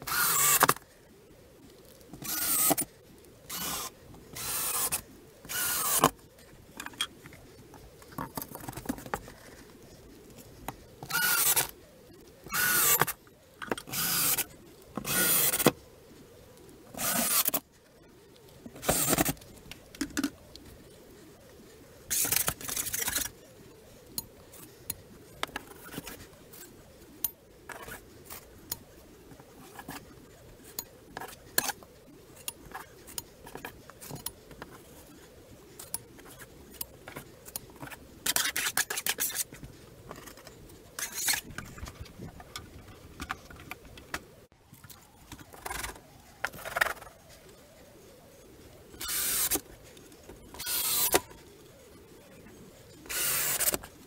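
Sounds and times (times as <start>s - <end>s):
cordless drill running: 15.1s - 15.6s, 17.0s - 17.6s, 53.1s - 53.8s.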